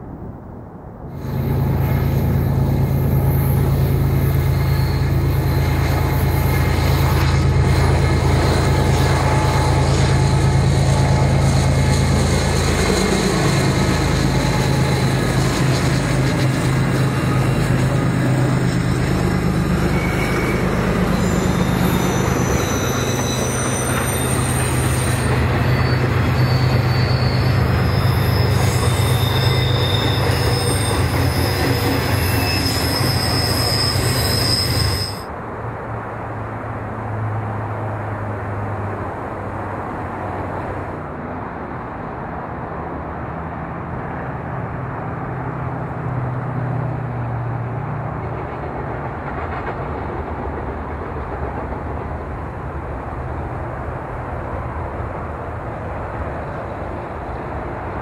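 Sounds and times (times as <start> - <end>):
locomotive engine drone: 1.0 - 58.0
train cars rolling: 1.2 - 35.3, 45.7 - 58.0
wheel squeal: 1.2 - 35.3.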